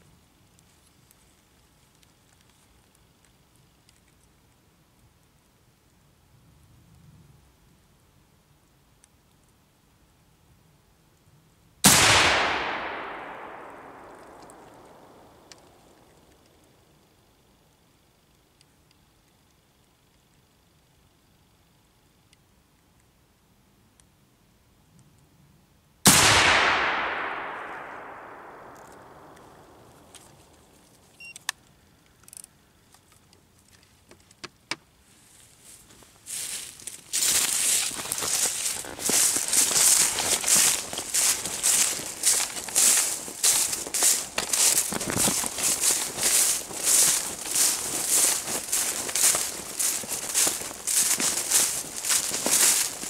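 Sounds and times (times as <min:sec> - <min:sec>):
rifle shot with echo: 0:11.8 - 0:15.8, 0:26.1 - 0:30.4
rifle metallic clicks and knocks: 0:31.4 - 0:34.8.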